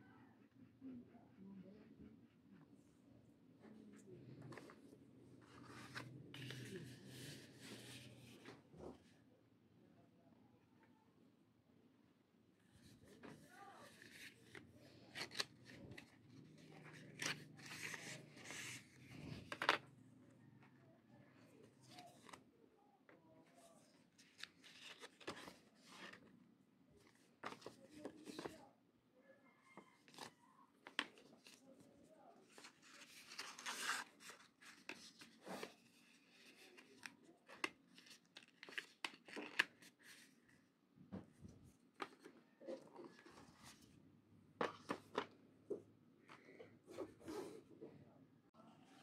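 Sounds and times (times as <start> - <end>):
paper rustling: 5.4 - 8.5, 12.8 - 19.8, 23.6 - 26.3, 27.0 - 28.6, 32.4 - 40.4
paper packaging rustling: 24.2 - 26.2, 32.4 - 40.4.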